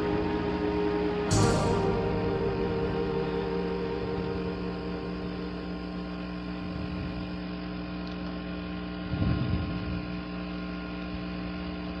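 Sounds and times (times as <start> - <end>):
steady electrical hum: 0.0 - 12.0.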